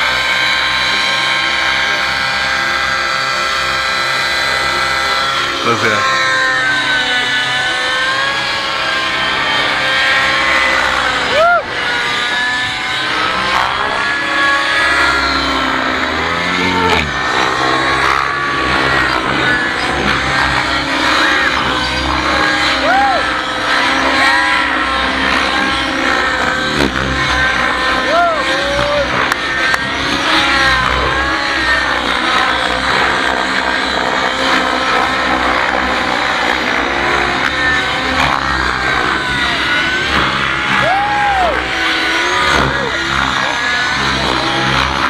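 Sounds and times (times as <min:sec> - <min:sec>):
model helicopter buzzing whine: 0:00.0 - 0:45.0.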